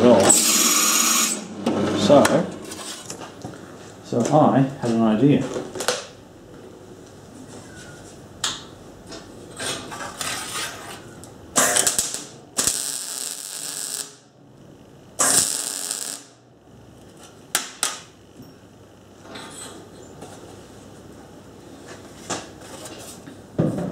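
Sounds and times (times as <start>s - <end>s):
welding arc buzzing: 0.0s - 3.2s, 11.5s - 18.1s.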